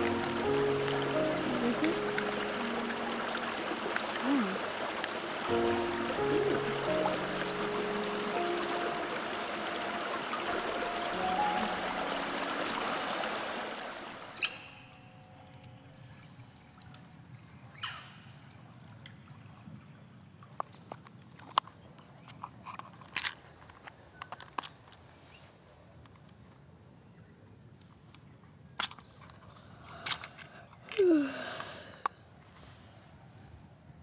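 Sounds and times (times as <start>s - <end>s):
forest stream rushing: 0.0s - 15.2s.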